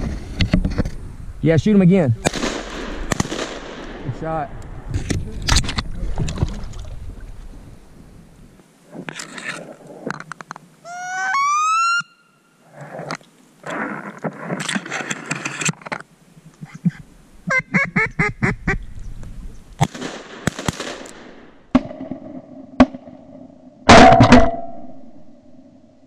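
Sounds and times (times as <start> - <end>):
loud volley of shotgun blasts: 2.2 - 4.1, 19.8 - 21.8
shotgun shots: 2.2 - 4.1, 19.8 - 21.9, 23.9 - 24.6
duck quacking: 16.6 - 18.8.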